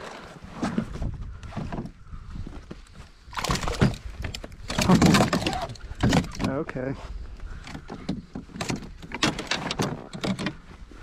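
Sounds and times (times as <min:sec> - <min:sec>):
fish thrashing and splashing: 0:03.2 - 0:06.4.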